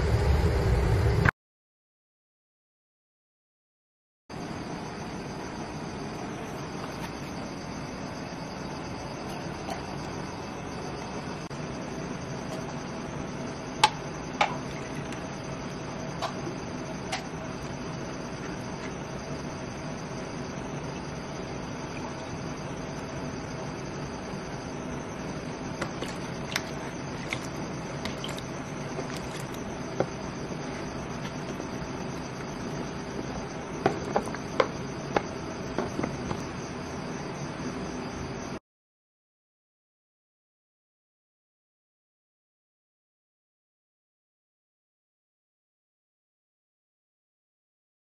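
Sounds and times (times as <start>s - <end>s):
steady background hum: 0.0s - 1.3s, 4.3s - 38.6s.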